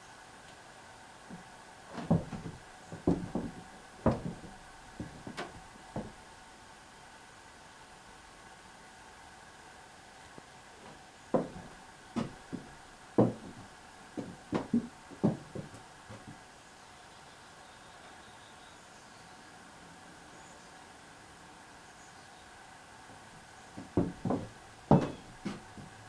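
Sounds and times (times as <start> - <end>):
faint steady hiss: 0.0 - 26.0
knocks and thuds on wood: 1.3 - 6.2, 11.3 - 16.4, 23.8 - 26.0.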